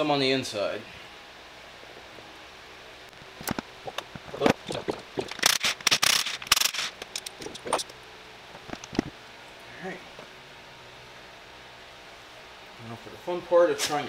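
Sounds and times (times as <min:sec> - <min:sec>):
impact wrench bursts: 0:05.2 - 0:07.8.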